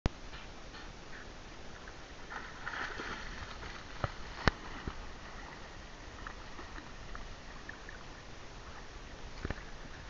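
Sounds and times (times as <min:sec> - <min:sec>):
low water noise: 0:00.1 - 0:10.0
dog splashing through water: 0:02.3 - 0:05.4.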